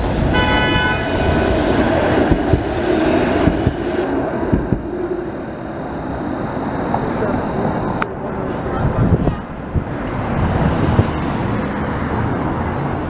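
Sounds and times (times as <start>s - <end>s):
streetcar wheels rumbling: 0.0s - 13.0s
high ringing tone: 3.2s - 8.8s, 10.0s - 10.5s, 11.8s - 13.0s.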